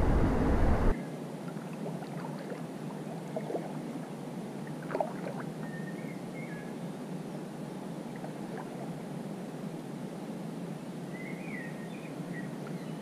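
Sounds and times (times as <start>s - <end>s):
small splashes: 1.5s - 5.5s
water gurgling and trickling: 1.5s - 5.6s, 8.0s - 9.0s
faint high chirp: 5.6s - 6.7s.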